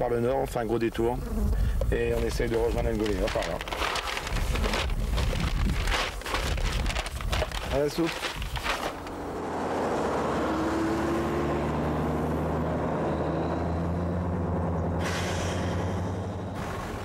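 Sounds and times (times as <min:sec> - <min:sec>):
off-road vehicle engines running: 0:01.6 - 0:17.0
paper rustling: 0:01.9 - 0:09.2.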